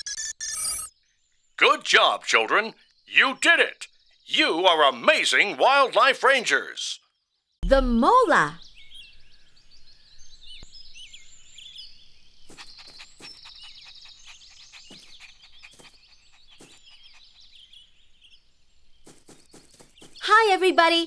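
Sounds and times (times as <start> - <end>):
birds chirping: 0.9 - 21.0
fast high bird trill: 12.4 - 18.0.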